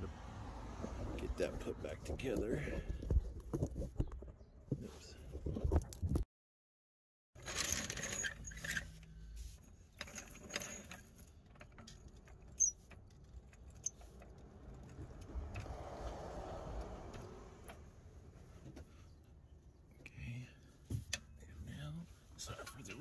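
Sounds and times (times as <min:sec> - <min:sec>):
metal tool clinking and scraping: 0:07.4 - 0:15.1.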